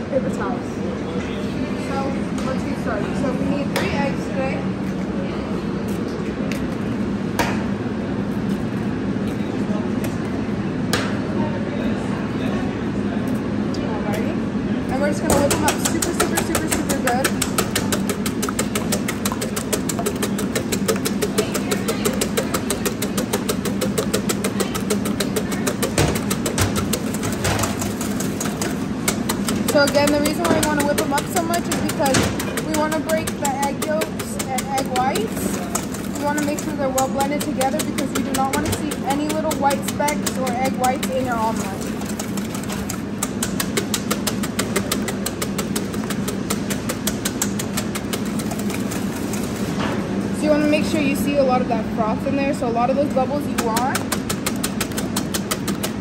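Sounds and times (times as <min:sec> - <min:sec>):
steady low hum: 0:00.0 - 0:56.0
whisk beating eggs in metal bowl: 0:14.9 - 0:49.8, 0:53.0 - 0:56.0.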